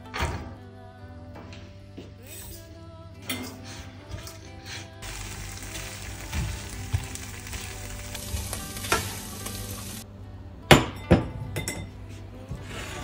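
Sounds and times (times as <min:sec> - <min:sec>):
light sizzle: 0:05.0 - 0:10.0
spatula scraping a pan: 0:12.6 - 0:13.0.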